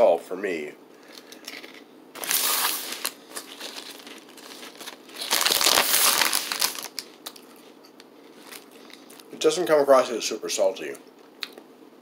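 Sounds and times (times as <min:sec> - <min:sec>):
plastic chip bag crinkling: 0:01.1 - 0:09.5.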